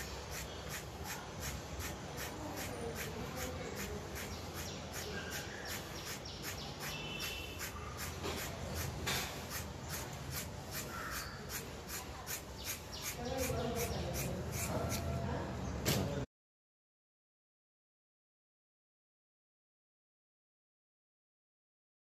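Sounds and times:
scissors snipping through hair: 0:00.0 - 0:07.0, 0:07.6 - 0:15.2.

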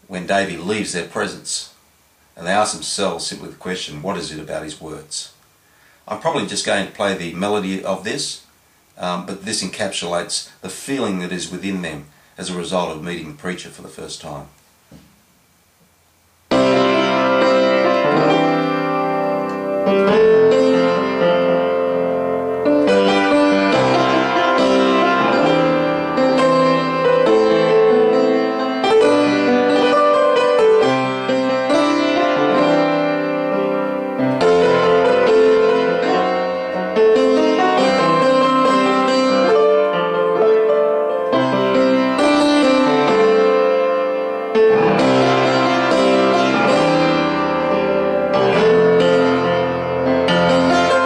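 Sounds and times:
piano melody over chords: 0:16.5 - 0:51.0.

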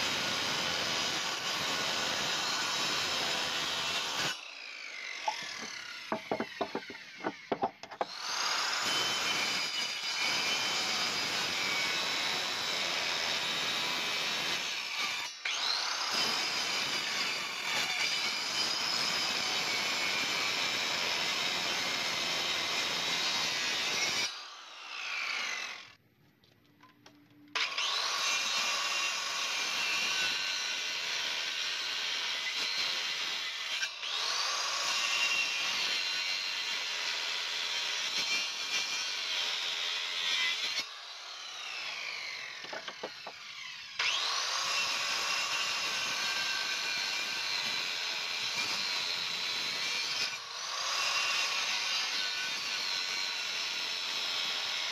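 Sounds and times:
jigsaw cutting wood: 0:00.0 - 0:26.0, 0:27.6 - 0:54.9.

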